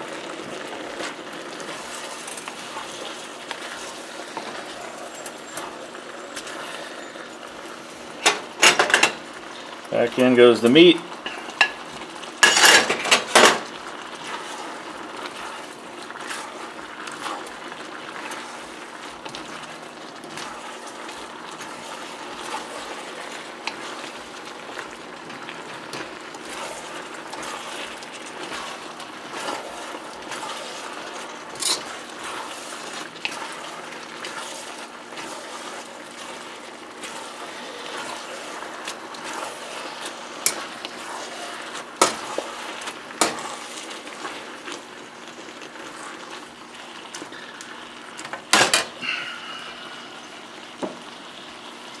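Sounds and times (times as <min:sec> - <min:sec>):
food sizzling in a wok: 0:00.0 - 0:52.0
utensils scraping a pan: 0:12.4 - 0:13.6, 0:19.3 - 0:44.8.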